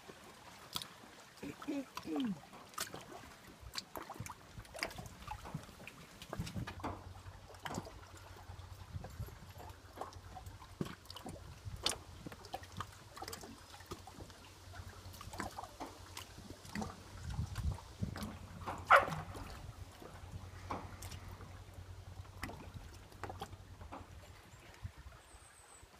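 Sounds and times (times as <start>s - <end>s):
waves lapping against boat hull: 0.0s - 25.9s.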